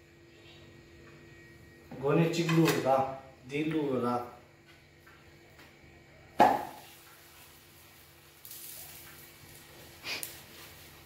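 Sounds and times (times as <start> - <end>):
faint sizzling hiss: 0.0 - 11.0
dough slapped onto griddle: 6.4 - 6.8.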